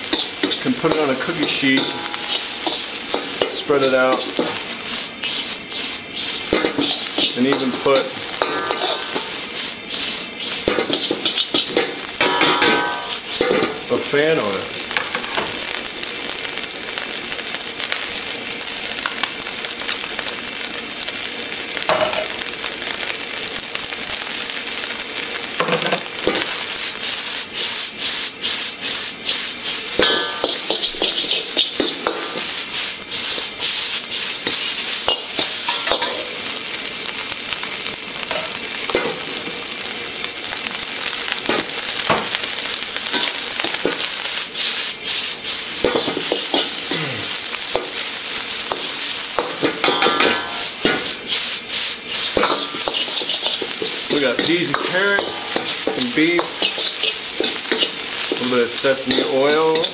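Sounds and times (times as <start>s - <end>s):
rice sizzling in a wok: 0.0s - 59.9s
metal ladle scraping a wok: 0.1s - 9.3s, 29.3s - 32.5s, 49.4s - 58.4s.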